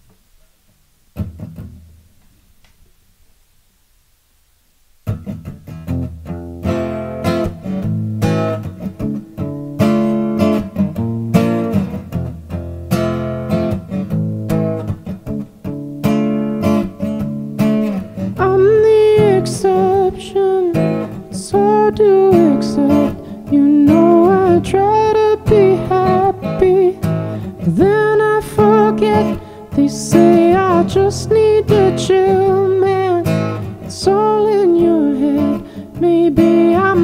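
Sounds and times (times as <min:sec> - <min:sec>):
acoustic guitar strumming: 0:01.1 - 0:02.3, 0:05.0 - 0:37.0
man singing: 0:18.4 - 0:37.0.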